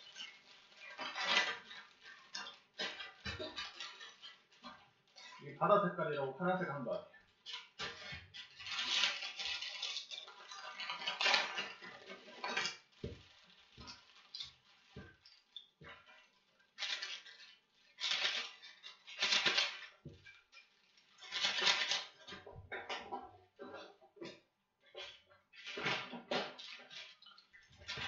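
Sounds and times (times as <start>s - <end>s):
plastic wrapper crinkling and tearing: 0.0s - 5.5s, 7.3s - 15.6s, 16.2s - 22.4s.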